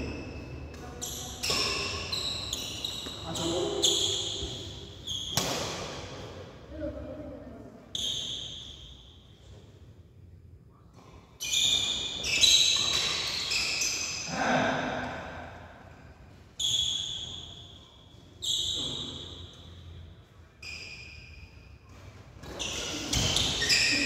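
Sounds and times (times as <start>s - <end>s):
rackets hitting shuttlecock: 0.5s - 3.2s, 4.0s - 6.4s.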